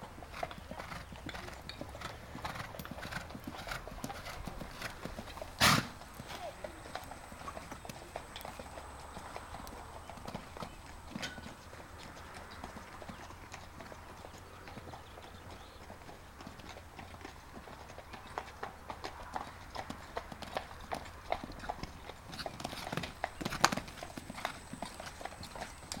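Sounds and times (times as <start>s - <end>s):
horse hoofbeats on sand: 0.0s - 14.3s, 20.9s - 26.0s.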